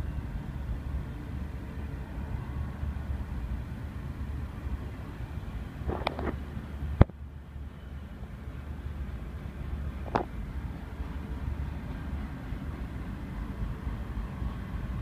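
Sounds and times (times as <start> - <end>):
freight train rumbling: 0.0 - 15.0.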